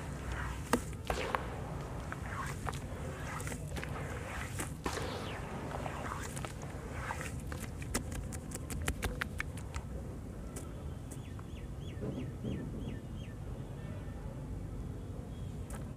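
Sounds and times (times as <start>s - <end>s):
wet crunches and clicks: 7.1s - 9.9s.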